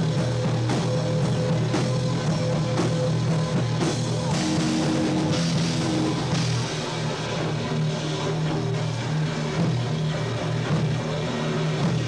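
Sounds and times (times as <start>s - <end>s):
bass low sustained notes: 0.0s - 12.0s
distorted electric guitar: 0.0s - 12.0s
heavy rock band playing: 0.0s - 12.0s.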